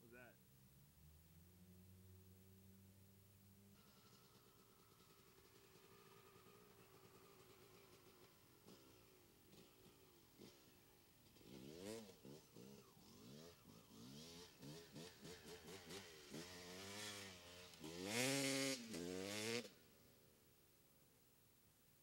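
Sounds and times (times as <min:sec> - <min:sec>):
dirt bike engine revving: 0:03.6 - 0:19.8.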